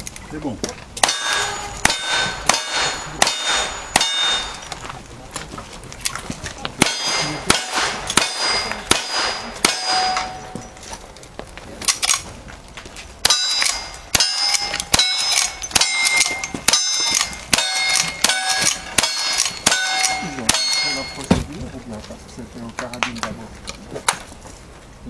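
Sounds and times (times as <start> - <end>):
rifle shots: 1.0 - 4.6, 6.8 - 10.4
steel target ringing: 1.0 - 4.8, 6.8 - 10.8, 13.2 - 21.3.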